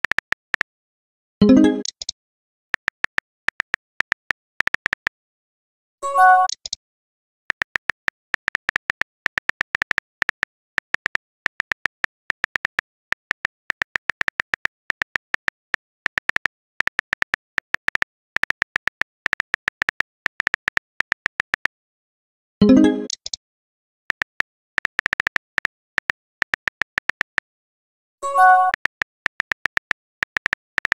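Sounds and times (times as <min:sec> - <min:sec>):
phone keyboard tap clicks: 0:07.5 - 0:21.7, 0:24.1 - 0:27.5, 0:28.6 - 0:30.9.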